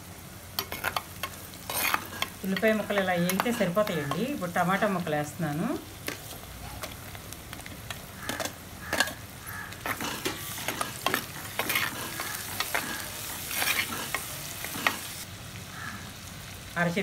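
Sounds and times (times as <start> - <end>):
oil sizzling: 0.0 - 17.0
spoon scraping a clay pot: 1.7 - 4.2, 8.2 - 15.1.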